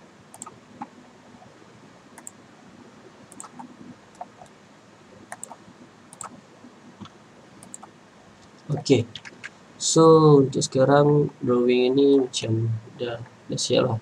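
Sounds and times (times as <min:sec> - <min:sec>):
low steady hiss: 0:00.0 - 0:14.0
computer mouse clicking: 0:00.3 - 0:00.9, 0:02.2 - 0:02.4, 0:03.3 - 0:04.6, 0:05.3 - 0:06.4, 0:07.0 - 0:07.9.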